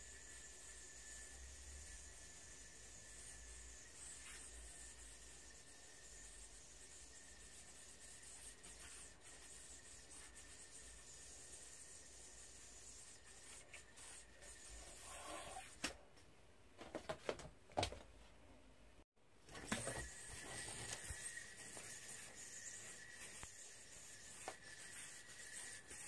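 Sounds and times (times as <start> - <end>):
low steady hiss: 0.0 - 16.8
yoyo string rubbing: 19.8 - 26.0.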